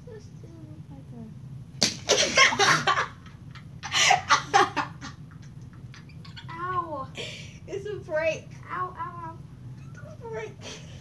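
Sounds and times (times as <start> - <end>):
sudden smack: 1.8 - 2.2.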